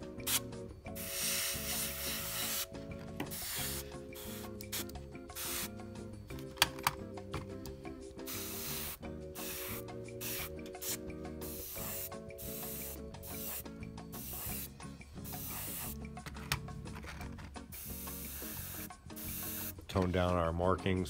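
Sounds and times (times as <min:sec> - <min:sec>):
airbrush hissing: 0:00.0 - 0:05.9, 0:08.2 - 0:16.0, 0:17.7 - 0:19.8
soft background music: 0:00.0 - 0:21.0.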